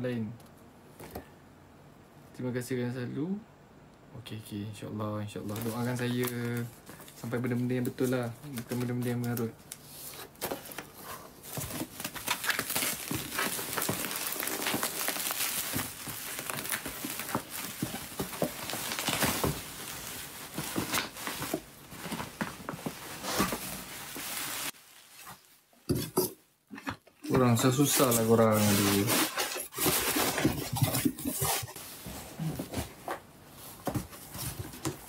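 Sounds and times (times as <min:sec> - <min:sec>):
bubble wrap and plastic crinkling: 0:05.4 - 0:25.8, 0:27.4 - 0:35.0.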